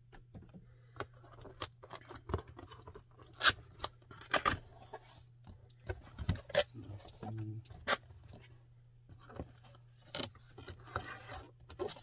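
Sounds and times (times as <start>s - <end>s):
cardboard scraping and rustling: 9.1s - 12.0s.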